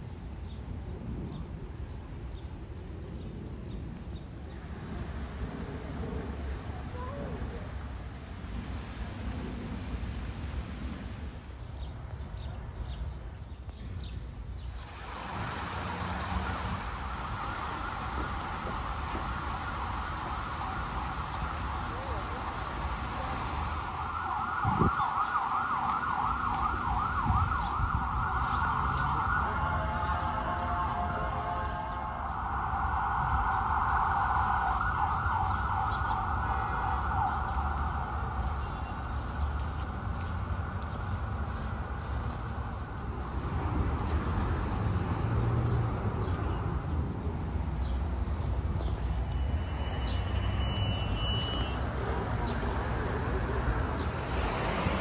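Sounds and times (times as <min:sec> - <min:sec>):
emergency siren yelping: 0:15.3 - 0:38.6.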